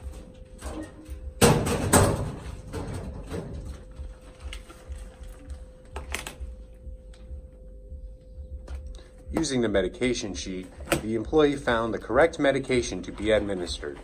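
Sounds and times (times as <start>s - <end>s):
metal cabinet slamming shut: 1.4s - 3.6s.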